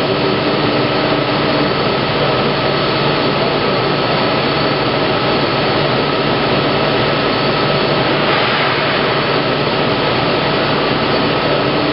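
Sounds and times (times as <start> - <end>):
plate rolling machine running: 5.2 - 11.9.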